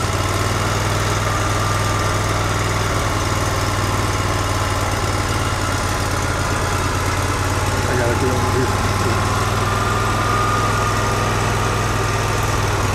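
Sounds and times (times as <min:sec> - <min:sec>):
engine idling: 0:00.0 - 0:12.9.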